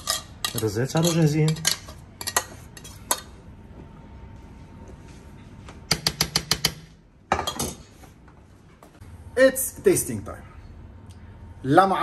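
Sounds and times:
utensils clinking on cookware: 0.0 - 3.4, 7.3 - 7.9
low kitchen background: 0.0 - 12.0.

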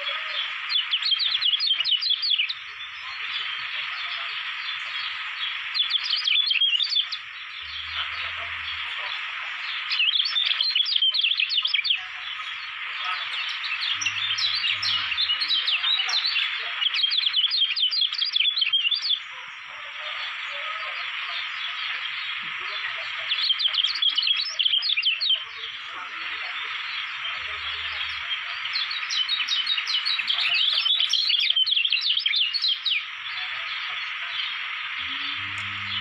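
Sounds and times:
bird high twittering song: 0.0 - 36.0.

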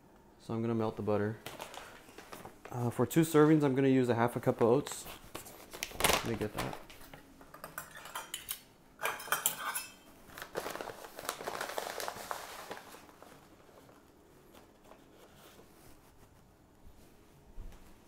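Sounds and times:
bag crinkling: 1.4 - 2.8, 10.2 - 14.1
metal cup clinking: 7.6 - 10.1.

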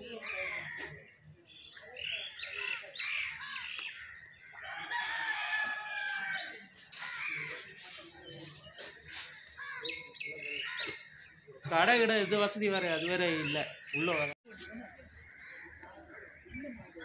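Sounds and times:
birds calling: 0.0 - 5.5, 6.2 - 17.0
rooster crowing: 4.6 - 6.5.

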